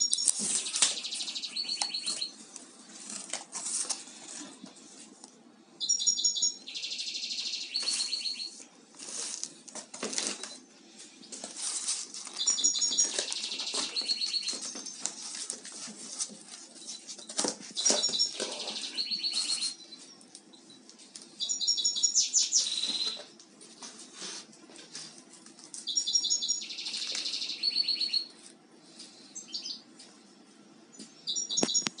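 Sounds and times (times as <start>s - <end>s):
cardboard and books handled: 0.2s - 1.2s, 2.0s - 5.4s, 9.0s - 18.8s
songbird singing: 5.8s - 8.5s, 17.8s - 20.0s, 20.6s - 23.3s, 25.9s - 28.3s, 31.1s - 32.0s.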